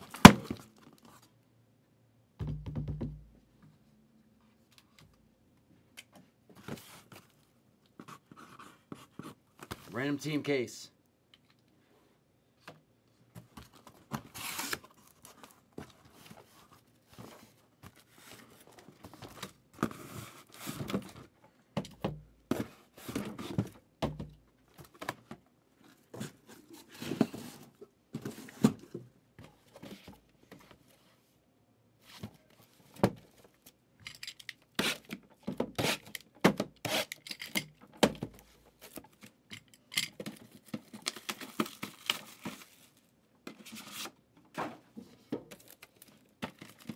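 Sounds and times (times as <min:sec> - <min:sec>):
boxes knocking when set down: 0:02.4 - 0:03.3
cardboard and tape tearing: 0:14.1 - 0:15.4, 0:34.7 - 0:35.2, 0:35.8 - 0:36.2, 0:36.8 - 0:37.3, 0:41.0 - 0:43.0.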